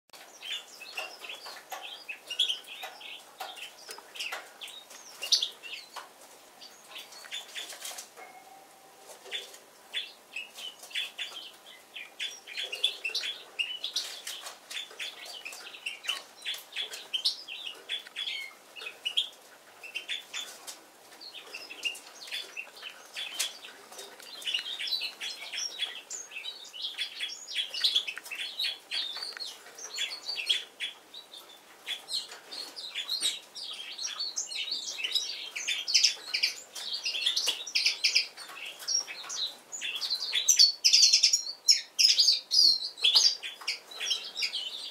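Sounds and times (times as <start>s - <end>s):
bird chirping song: 0.1s - 44.9s.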